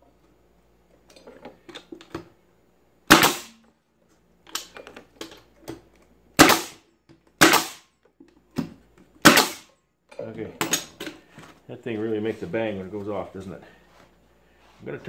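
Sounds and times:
pneumatic stapler bangs: 3.1 - 3.6, 6.4 - 6.8, 7.4 - 7.9, 9.2 - 9.7.

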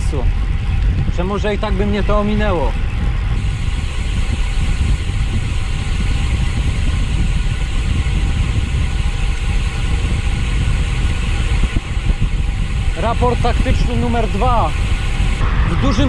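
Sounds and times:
wind rumble on microphone: 0.0 - 16.0
rushing noise: 3.2 - 16.0.

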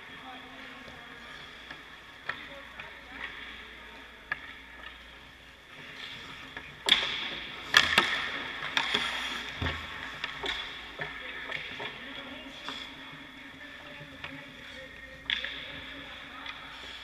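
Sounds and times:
skates scraping ice: 5.2 - 17.0
puck cracking on pads: 6.5 - 12.0.

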